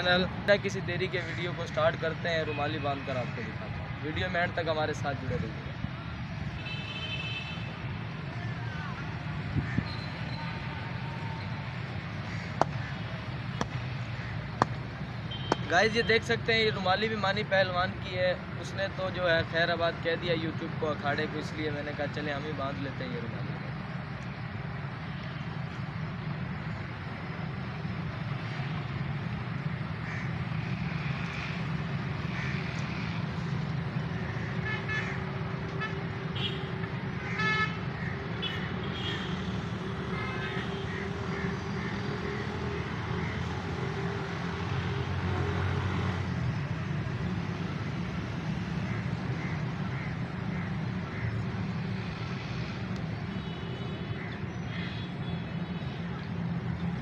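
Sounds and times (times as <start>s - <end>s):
road traffic rumble: 0.0s - 57.0s
vehicle horns honking: 15.3s - 15.8s.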